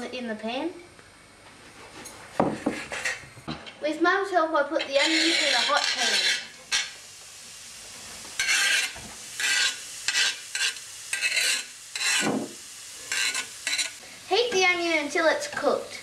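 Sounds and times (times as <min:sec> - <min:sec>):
onion sizzling in a frying pan: 0:04.2 - 0:16.0.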